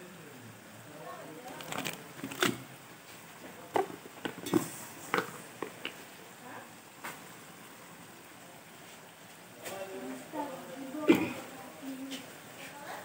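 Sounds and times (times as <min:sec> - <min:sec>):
faint hiss: 0:00.0 - 0:13.0.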